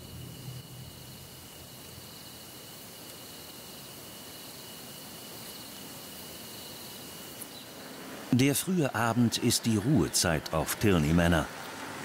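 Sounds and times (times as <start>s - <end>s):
insects trilling: 0.0s - 11.9s
faint hiss: 0.0s - 12.0s.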